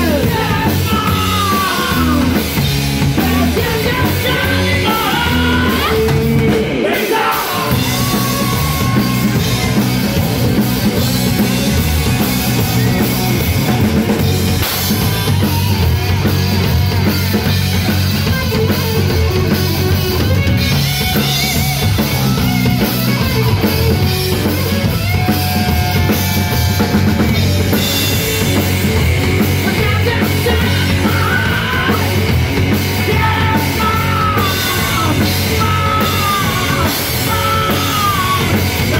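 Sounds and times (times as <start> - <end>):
man singing and shouting: 0.0 - 10.2, 28.5 - 38.9
bass guitar: 0.0 - 38.9
drum kit: 0.0 - 38.9
electric guitar: 0.0 - 38.9.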